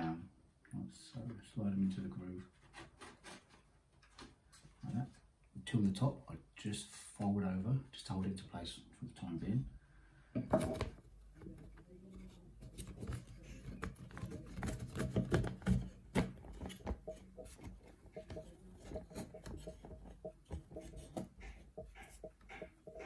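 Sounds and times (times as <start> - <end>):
wooden frame knocking and rubbing: 12.6 - 23.0.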